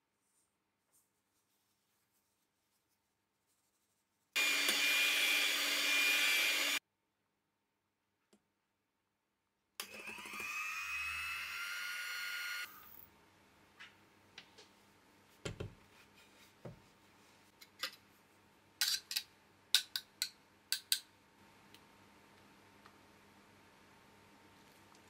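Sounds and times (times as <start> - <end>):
electric hand mixer whirring: 4.4 - 6.8, 9.8 - 13.0.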